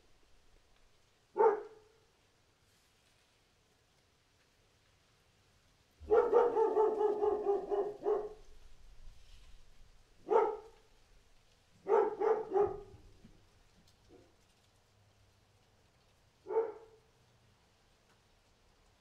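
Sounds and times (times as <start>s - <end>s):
dog barking: 1.4s - 2.0s, 6.0s - 8.6s, 10.2s - 10.8s, 11.8s - 13.2s, 16.5s - 17.1s.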